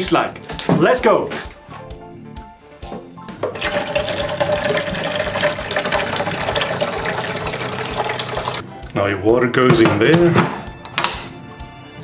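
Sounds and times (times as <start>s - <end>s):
tap water pouring into tank: 3.5s - 8.6s.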